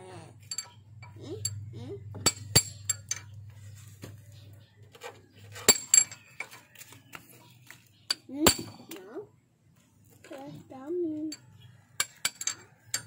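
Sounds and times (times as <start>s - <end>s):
hammer striking metal socket: 2.2s - 3.3s.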